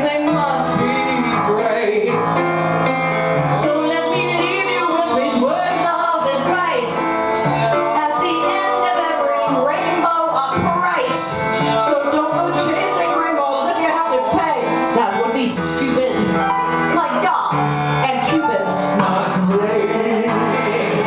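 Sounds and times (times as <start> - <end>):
person singing into microphone: 0.0 - 2.3, 3.6 - 16.1
keyboard accompaniment: 0.0 - 21.0.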